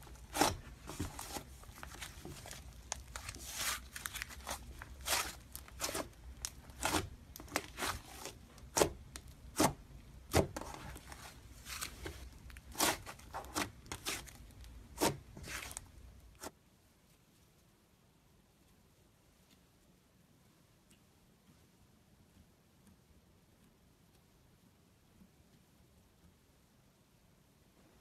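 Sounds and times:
sticky slime popping: 1.8s - 11.1s.

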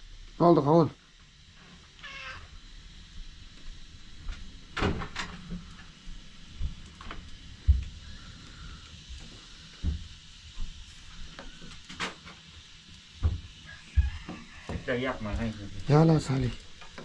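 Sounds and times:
cat meowing faintly: 2.0s - 2.5s, 13.7s - 15.0s.

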